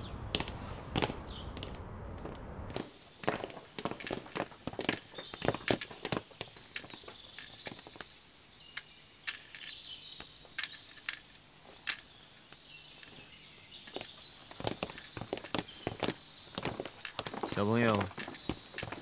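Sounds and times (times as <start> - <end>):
boots footsteps on stone: 0.3 - 8.2, 9.6 - 19.0
faint bird chirping: 4.2 - 19.0.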